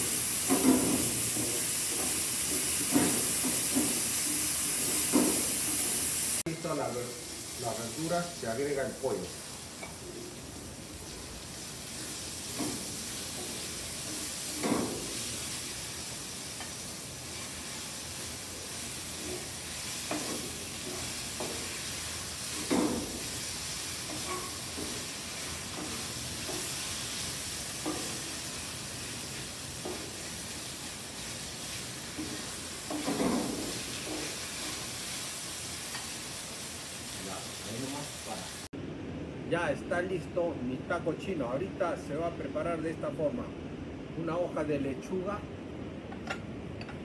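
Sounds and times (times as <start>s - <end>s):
chicken and vegetables sizzling in wok: 0.0s - 38.7s
wooden spoon scraping a pan: 18.7s - 30.6s, 31.2s - 35.2s.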